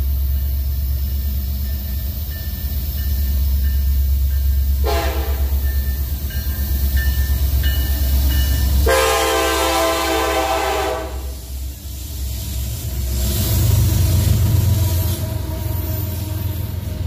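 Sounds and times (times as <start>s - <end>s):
diesel locomotive engines rumbling: 0.0s - 17.0s
locomotive air horn blasts: 4.8s - 5.6s, 8.8s - 11.4s.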